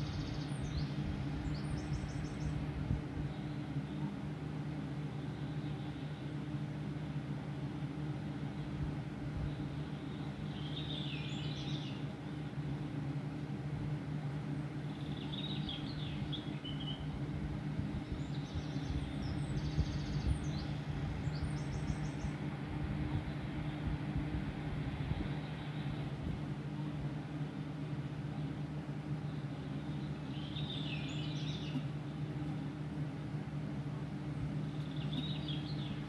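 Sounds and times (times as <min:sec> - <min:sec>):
bird chirps: 0:00.0 - 0:02.6, 0:09.5 - 0:12.0, 0:14.9 - 0:17.1, 0:18.1 - 0:22.4, 0:29.2 - 0:32.2, 0:34.7 - 0:36.0
steady low hum: 0:00.0 - 0:36.0.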